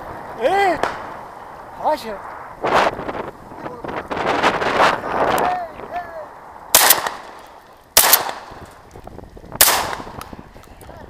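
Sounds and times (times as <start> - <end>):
shotgun shots with echo: 6.7 - 7.4, 8.0 - 8.6, 9.6 - 10.2.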